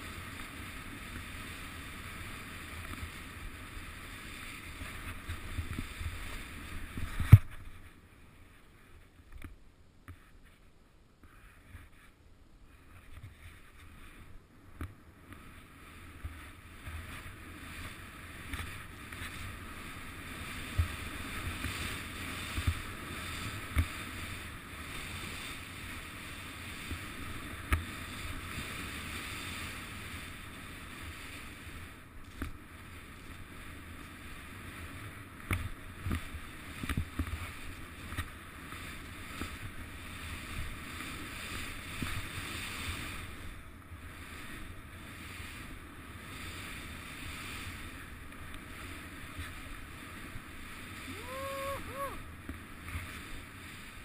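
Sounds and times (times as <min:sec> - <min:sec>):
skis hissing through snow: 0:00.0 - 0:09.1, 0:11.3 - 0:14.4, 0:15.2 - 0:54.0
wind on microphone: 0:38.8 - 0:54.0.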